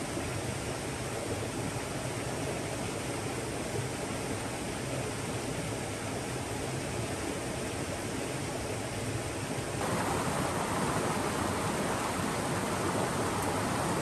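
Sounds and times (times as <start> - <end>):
river cascade rushing: 9.8 - 14.0.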